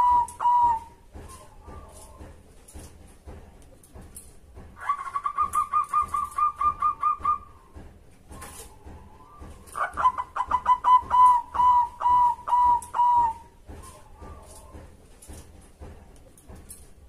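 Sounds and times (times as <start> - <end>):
dove cooing: 0.0 - 2.2, 4.8 - 7.6, 8.4 - 14.8.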